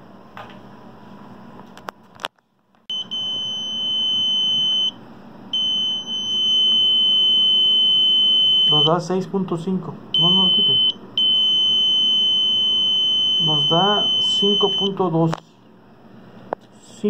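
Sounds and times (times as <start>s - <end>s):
multimeter high beep: 2.9s - 5.0s, 5.6s - 9.0s, 10.2s - 15.0s.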